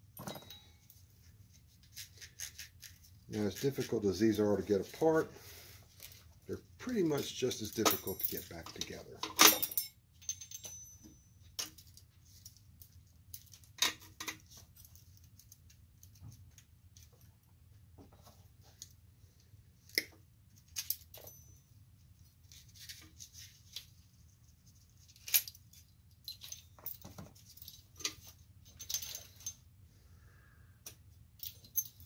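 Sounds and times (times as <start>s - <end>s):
metallic clicks and clinks: 0.2s - 1.0s, 7.1s - 16.2s, 20.6s - 21.6s, 25.1s - 29.6s, 30.8s - 32.0s.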